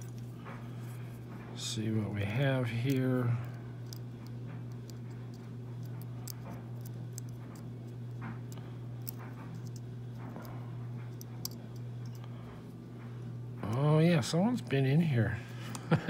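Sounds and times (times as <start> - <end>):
steady low hum: 0.0 - 16.0
metal pick clicking and scraping: 2.7 - 12.3.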